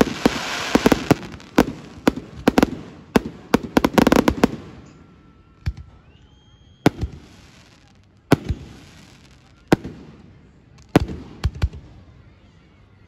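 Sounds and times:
firework hiss: 0.0s - 2.8s.

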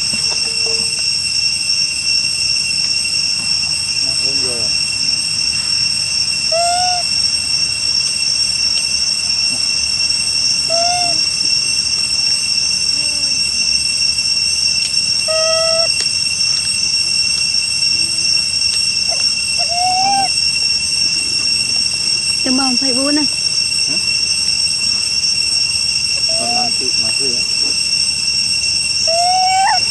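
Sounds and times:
forest insects droning: 0.0s - 29.9s
short arching bird calls: 6.5s - 7.1s, 10.7s - 11.4s, 15.2s - 16.0s, 19.1s - 20.4s, 26.2s - 26.8s, 29.1s - 29.9s.

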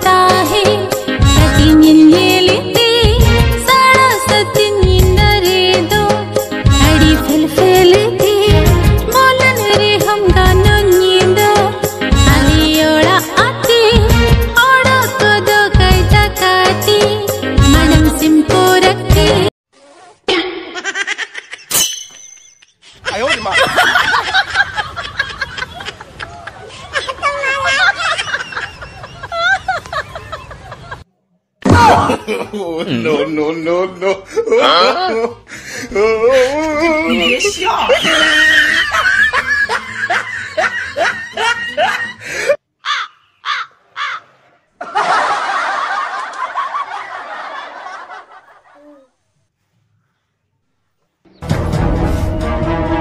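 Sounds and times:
song music: 0.0s - 19.5s, 51.4s - 53.0s
people snickering laughter: 23.1s - 31.0s, 37.9s - 42.4s, 44.8s - 49.1s.

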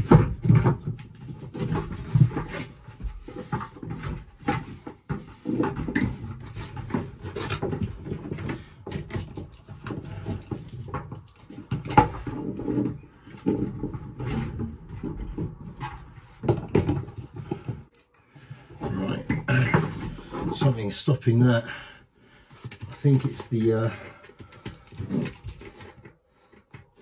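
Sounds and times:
knocking and scraping plastic pipe: 0.0s - 21.7s, 22.3s - 27.0s
man grunting and breathing: 21.5s - 22.1s.

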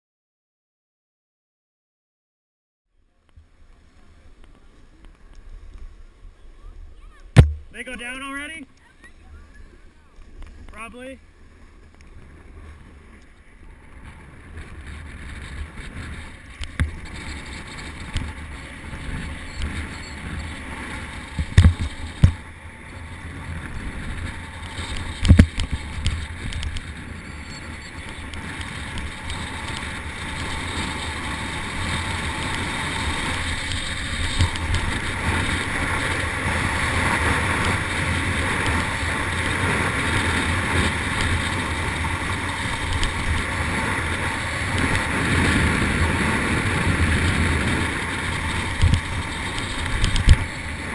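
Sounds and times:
snowboard sliding over snow: 3.5s - 50.9s
sharp thumps: 7.2s - 8.0s, 21.3s - 22.5s
wind rushing on microphone: 9.3s - 50.9s.

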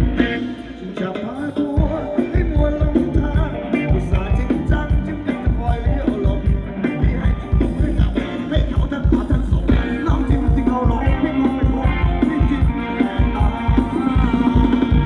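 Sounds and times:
driving drum beat: 0.0s - 15.0s
live band playing dance music: 0.0s - 15.0s
person singing: 0.0s - 15.0s.

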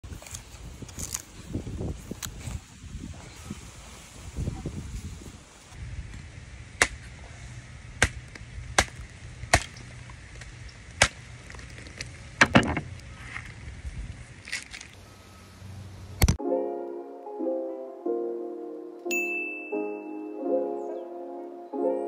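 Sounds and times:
machete chopping coconut: 6.8s - 7.1s, 8.0s - 8.2s, 8.8s - 9.8s, 11.0s - 11.2s.

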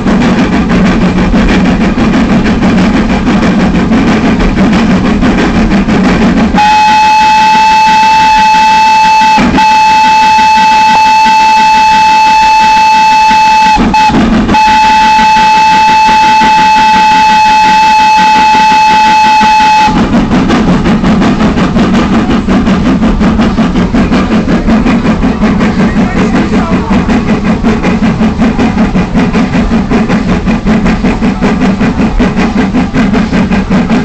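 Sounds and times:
low rumble of train running: 0.0s - 34.0s
train whistle blowing: 6.5s - 20.1s.

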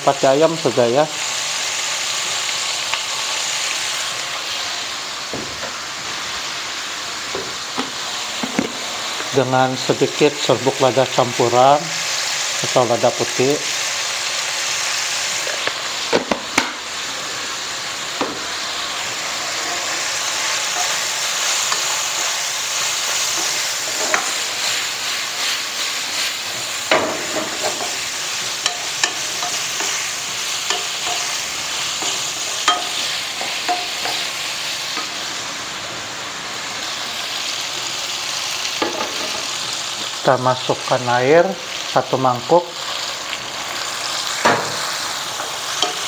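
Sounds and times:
food sizzling in a wok: 0.0s - 46.0s
spatula knocking and scraping pan: 7.3s - 9.3s, 23.3s - 24.4s, 26.9s - 28.0s, 28.6s - 34.3s, 44.4s - 44.9s.

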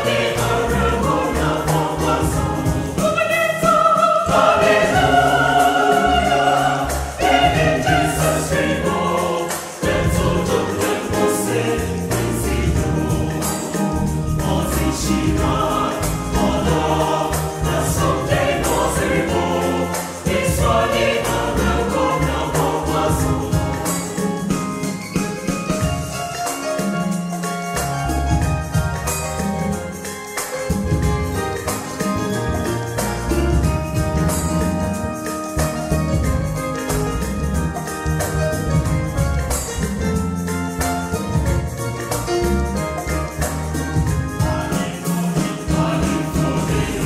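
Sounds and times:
keyboard with bass line: 0.0s - 3.0s, 4.3s - 47.0s
choir singing in harmony: 0.0s - 27.1s, 41.4s - 47.0s.

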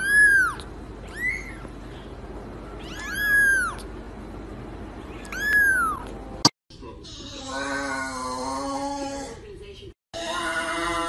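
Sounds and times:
kitten meowing: 0.0s - 1.7s, 2.8s - 3.9s, 5.2s - 6.1s.

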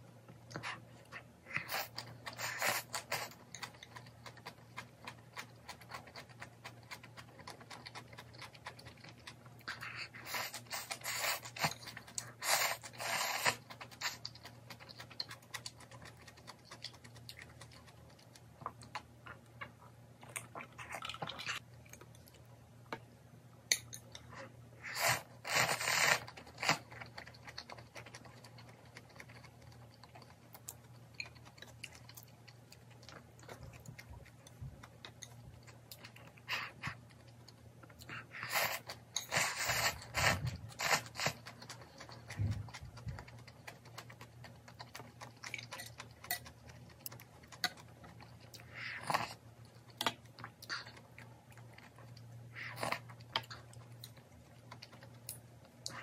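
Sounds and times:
soft chewing: 0.0s - 56.0s
slurping noodles: 10.1s - 11.8s, 12.4s - 14.2s, 24.8s - 26.8s, 38.4s - 41.4s.

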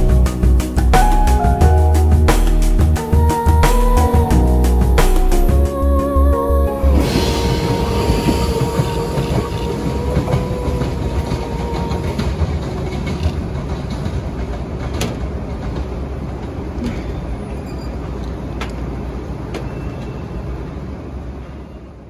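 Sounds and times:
train wheels rumbling on rails: 0.0s - 22.0s
faint train whine: 4.1s - 22.0s.

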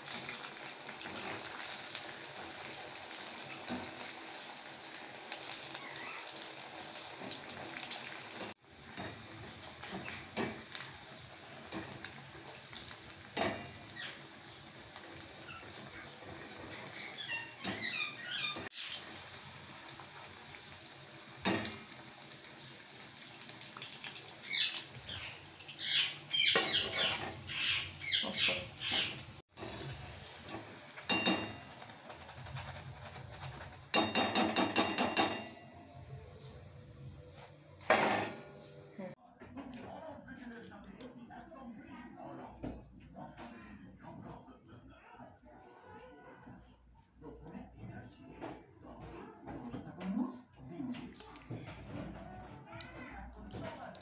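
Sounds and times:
oil sizzling and crackling: 0.0s - 39.2s
wire skimmer clinking on pan: 13.3s - 13.9s, 30.4s - 31.8s.

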